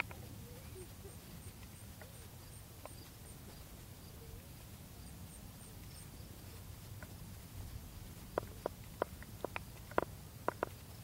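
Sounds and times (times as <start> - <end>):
faint clicks: 2.8 - 3.6, 8.2 - 11.0.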